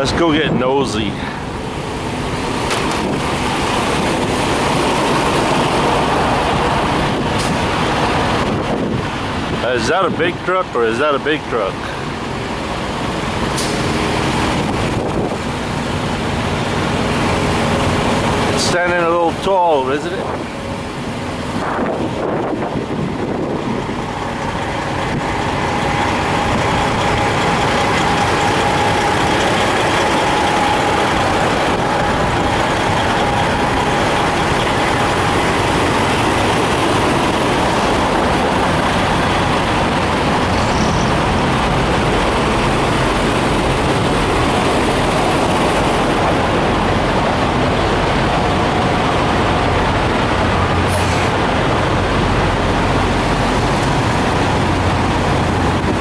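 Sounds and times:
diesel trucks idling: 0.0 - 56.0
low hum: 20.4 - 56.0.

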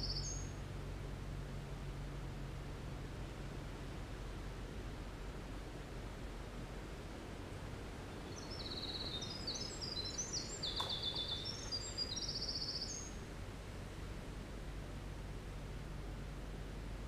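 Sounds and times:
wren singing trills: 0.0 - 0.5, 8.1 - 13.2
low background hiss: 0.0 - 17.0
faint click: 10.7 - 11.3.

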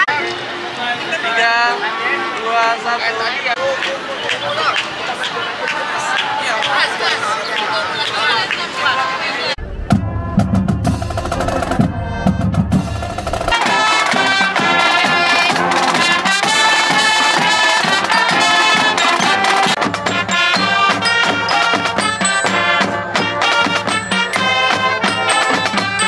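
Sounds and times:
marching band drums: 9.6 - 26.0
bright music with percussive beat: 9.8 - 26.0.

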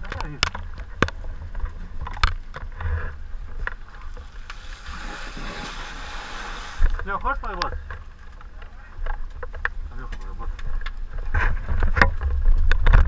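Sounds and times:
steady rushing hiss: 2.6 - 9.1.

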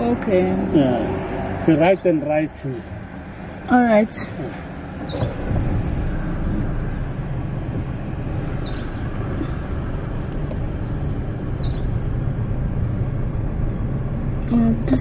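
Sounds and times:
car engine low rumble: 0.0 - 15.0.

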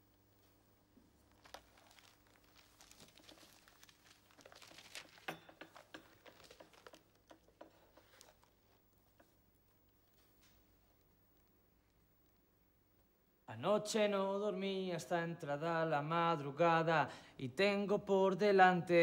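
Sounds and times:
faint steady hum: 0.0 - 19.0
newspaper pages rustling: 1.2 - 8.9.

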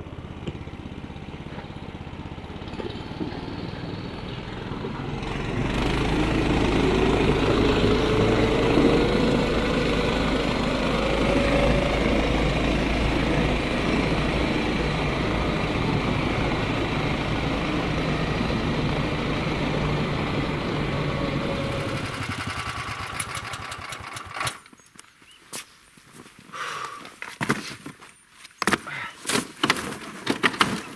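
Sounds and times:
tow sled engine running: 0.0 - 24.7.

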